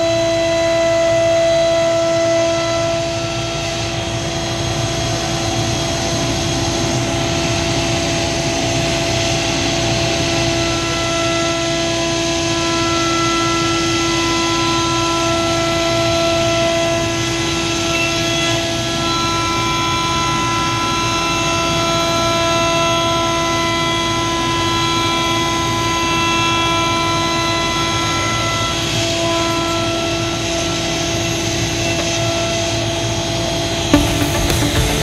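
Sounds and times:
router spindle whine: 0.0 - 35.0
metal cutting noise: 33.9 - 35.0.

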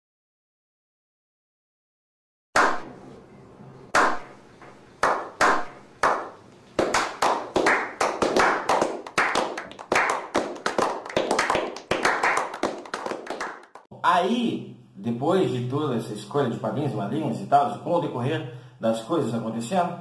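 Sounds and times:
people clapping: 2.6 - 2.8, 4.0 - 4.2, 5.0 - 13.9.

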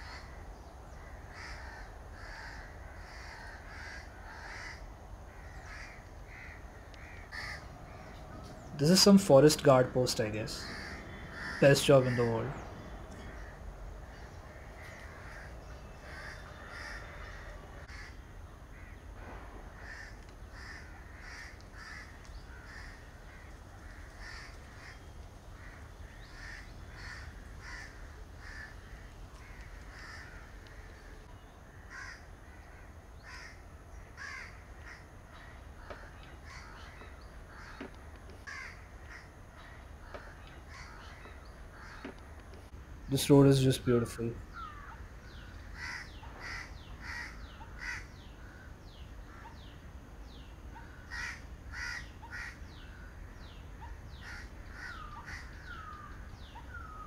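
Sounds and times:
crows cawing: 0.0 - 19.0, 19.6 - 42.7, 44.5 - 49.7, 50.8 - 57.0
steady low rumble: 4.1 - 11.6, 12.2 - 16.3.

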